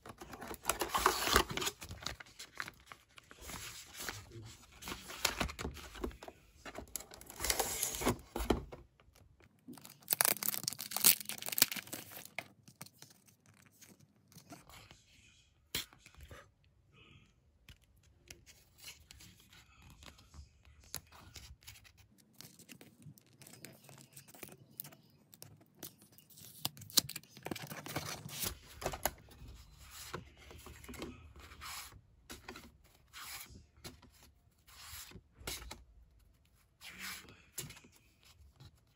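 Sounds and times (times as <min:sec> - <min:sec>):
paper rustling: 0:00.0 - 0:08.7.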